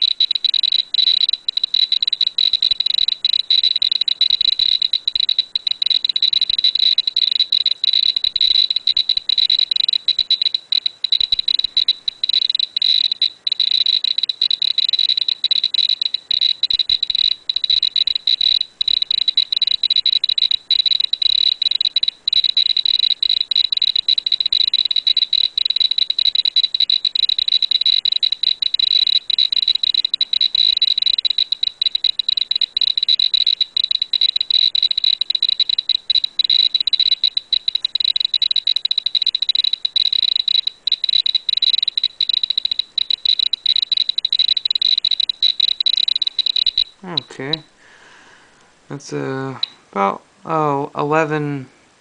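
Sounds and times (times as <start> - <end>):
rapid high-pitched chirping beeper: 0.0 - 47.8.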